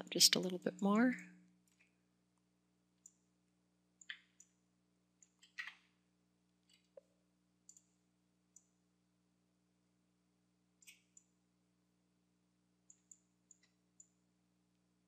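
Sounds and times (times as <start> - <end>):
faint low hum: 0.0 - 15.0
computer mouse clicks: 3.0 - 3.3, 4.0 - 4.6, 5.2 - 5.9, 6.6 - 8.8, 10.8 - 11.3, 12.9 - 14.2.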